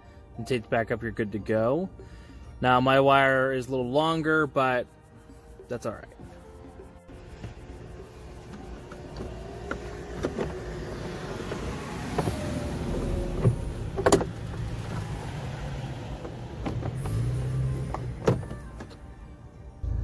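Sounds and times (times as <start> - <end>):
sharp knocks and clicks: 13.4 - 14.7.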